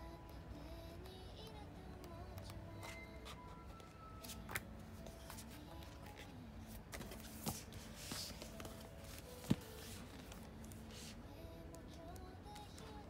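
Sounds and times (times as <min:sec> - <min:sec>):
faint background music: 0:00.0 - 0:13.0
book pages flipping: 0:02.4 - 0:11.2.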